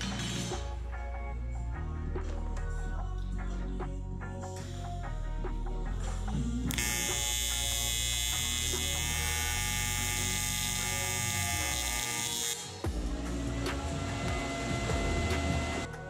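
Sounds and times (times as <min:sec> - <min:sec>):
welding arc buzzing: 0:06.7 - 0:15.9.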